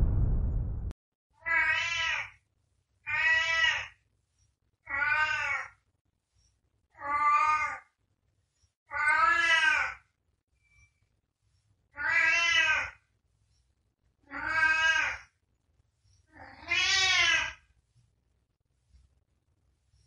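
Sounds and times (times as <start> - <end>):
loud low boom: 0.0 - 1.0
cat meowing: 1.4 - 2.3, 3.1 - 3.9, 4.8 - 5.8, 7.0 - 7.9, 8.9 - 10.0, 12.0 - 13.0, 14.2 - 15.3, 16.3 - 17.6.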